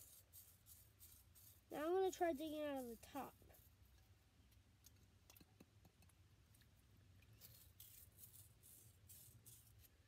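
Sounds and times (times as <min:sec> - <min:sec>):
small tool scraping and clicking: 0:04.8 - 0:09.9.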